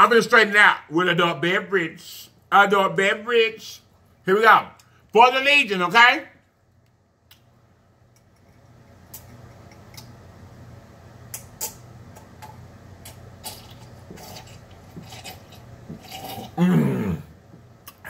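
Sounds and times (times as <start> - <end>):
man gulping a drink: 13.0 - 18.0.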